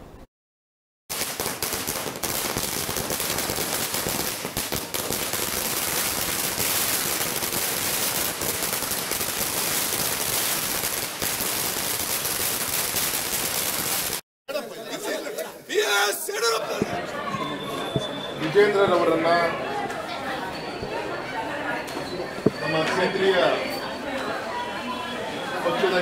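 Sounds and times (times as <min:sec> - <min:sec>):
firecrackers bursting: 0:01.1 - 0:14.2.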